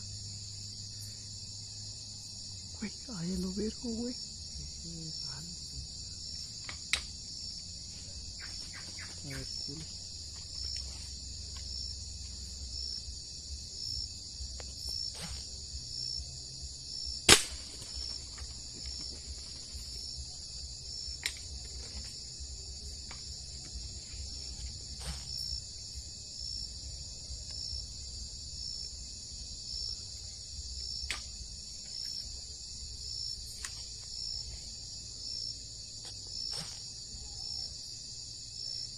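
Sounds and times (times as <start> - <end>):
night insects buzzing: 0.0 - 38.9
sharp crack: 6.6 - 7.2, 17.2 - 18.5.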